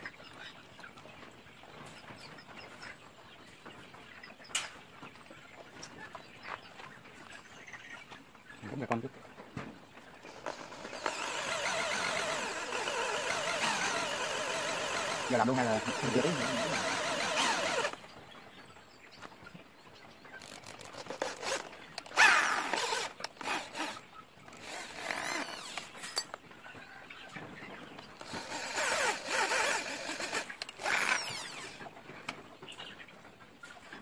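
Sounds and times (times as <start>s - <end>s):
electric drill driving screws: 10.3s - 18.0s, 20.4s - 26.4s, 28.2s - 31.8s.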